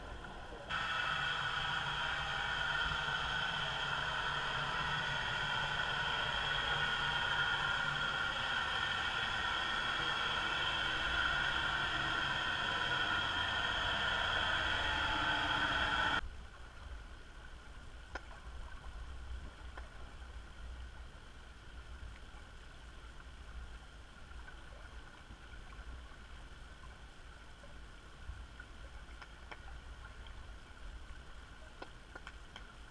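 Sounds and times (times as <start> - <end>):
underwater ship grinding hiss: 0.7 - 16.2
faint ticks: 27.6 - 32.9.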